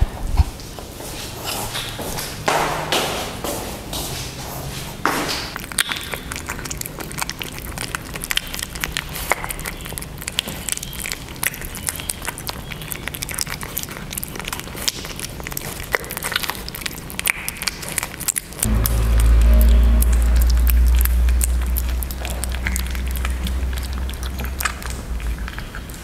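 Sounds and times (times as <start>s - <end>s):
kittens lapping and chewing: 5.5s - 18.7s, 21.4s - 26.0s.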